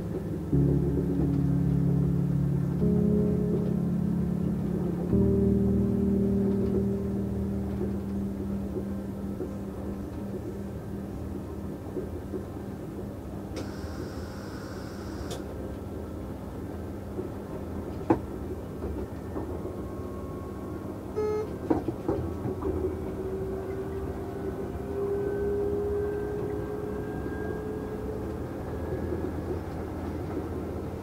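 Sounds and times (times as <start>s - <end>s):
train rumbling on rails: 0.0s - 31.0s
track clicks: 21.2s - 23.2s.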